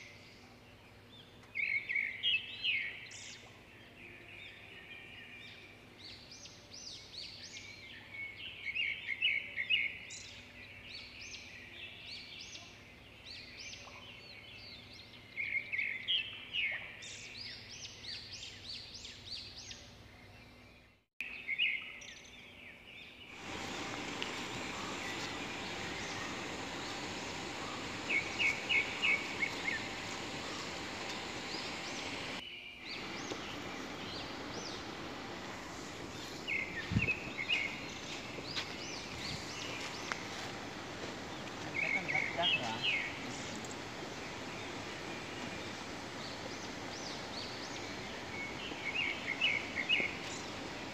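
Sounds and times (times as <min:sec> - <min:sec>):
small birds chirping and trilling: 0:00.0 - 0:50.9
steady hiss: 0:23.3 - 0:50.9.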